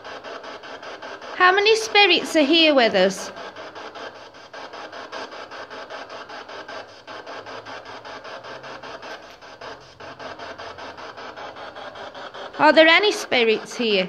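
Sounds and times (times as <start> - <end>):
pulsing radio static: 1.4 - 3.4, 12.5 - 14.0.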